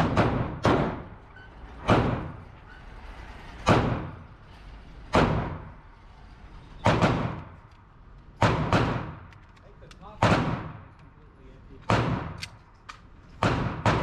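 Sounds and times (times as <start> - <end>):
pistol shots with echo: 8.4 - 9.2, 10.2 - 10.9, 11.8 - 12.6, 13.4 - 14.0.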